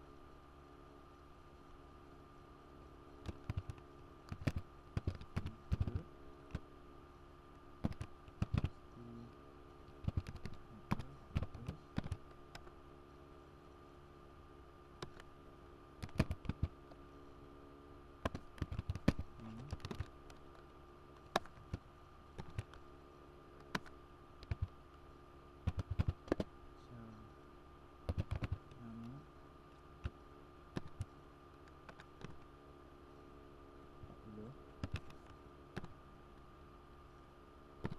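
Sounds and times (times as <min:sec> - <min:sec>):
faint steady hum: 0:00.0 - 0:37.9
typing on computer keyboard: 0:03.2 - 0:06.0, 0:07.8 - 0:08.7, 0:10.0 - 0:12.7, 0:16.0 - 0:16.7, 0:18.3 - 0:20.1, 0:23.6 - 0:24.7, 0:25.7 - 0:26.4, 0:28.1 - 0:28.6.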